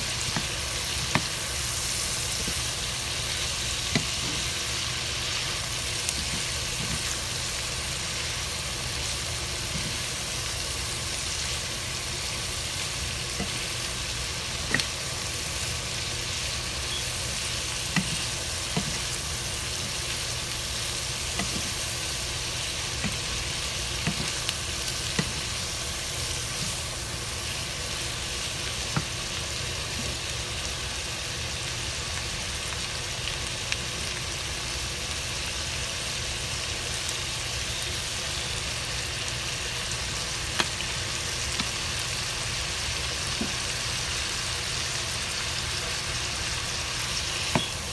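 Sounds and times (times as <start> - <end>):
food sizzling in a frying pan: 0.0 - 47.9
wooden spoon scraping a pan: 21.4 - 21.9.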